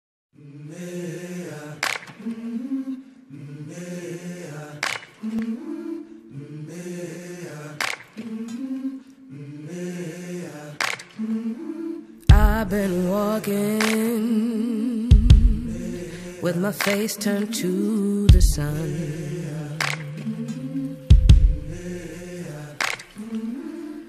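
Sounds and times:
a cappella vocal phrase: 0.4 - 24.0.

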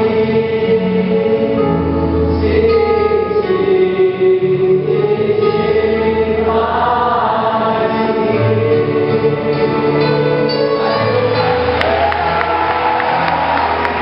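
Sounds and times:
congregation singing worship song: 0.0 - 14.0
live worship band: 0.0 - 14.0
people clapping: 11.0 - 14.0.

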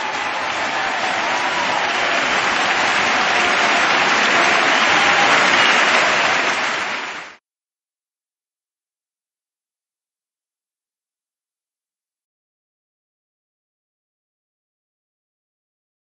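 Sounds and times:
applause: 0.0 - 7.4.

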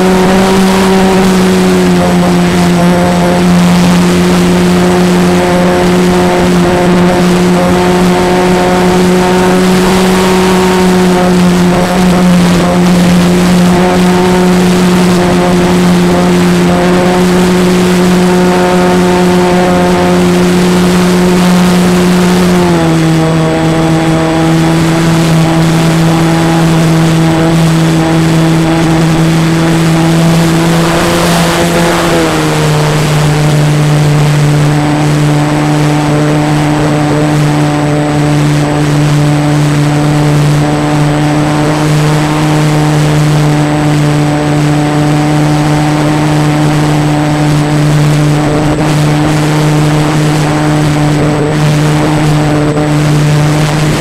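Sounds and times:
model plane motor and propeller: 0.0 - 54.0
wind rushing: 21.8 - 36.0.

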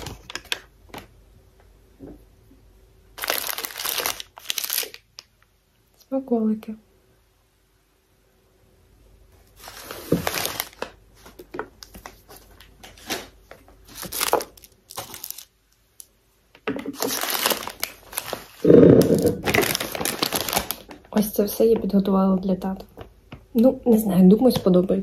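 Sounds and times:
plastic wrappers crinkling: 0.0 - 1.1, 3.2 - 5.5, 9.5 - 16.1, 16.8 - 22.1.

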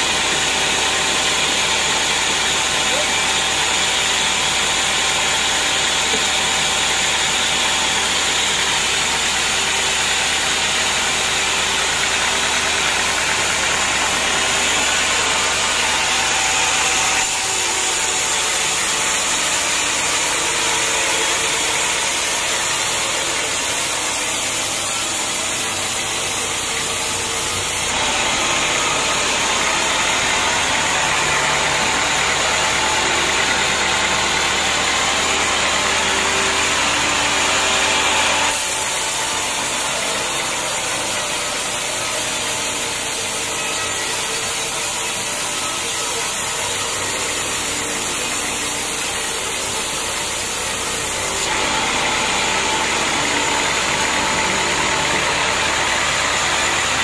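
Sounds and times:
band saw cutting log: 0.0 - 57.0
mill drive drone: 0.0 - 57.0.

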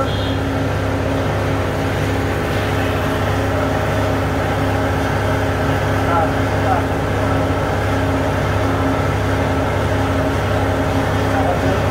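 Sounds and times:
machine droning with pulsing hum: 0.0 - 11.9.

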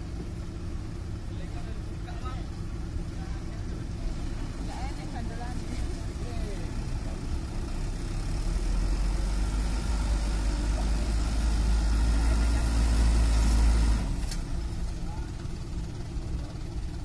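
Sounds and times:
truck diesel engine in mud: 0.0 - 17.0.

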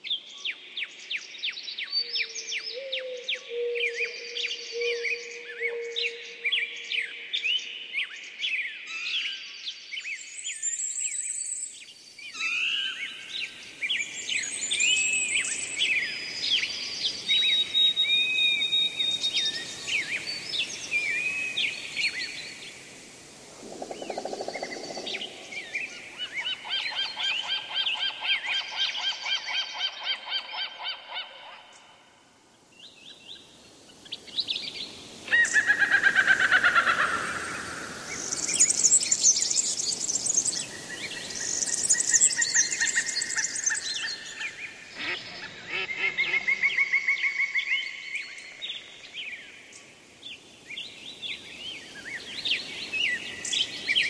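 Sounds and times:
birds chirping and trilling: 12.3 - 31.9, 32.9 - 54.0.

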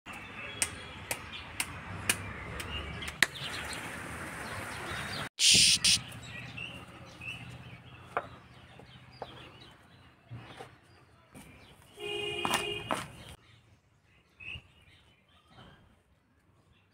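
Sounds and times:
short loud burst of noise: 5.4 - 6.0.

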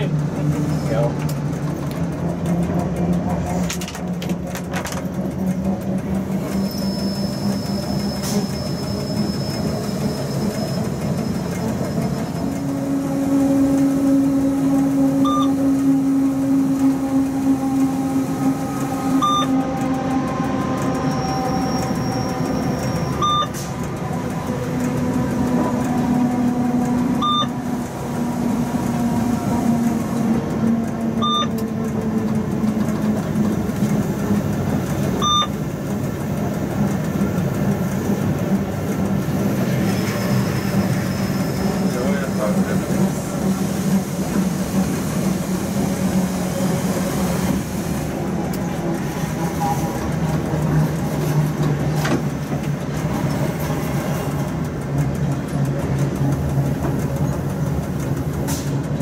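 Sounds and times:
train rumble with humming tones: 0.0 - 59.0
short electronic beep: 15.2 - 15.6, 19.2 - 19.6, 22.9 - 23.6, 27.2 - 27.5, 31.2 - 31.5, 35.2 - 35.5.

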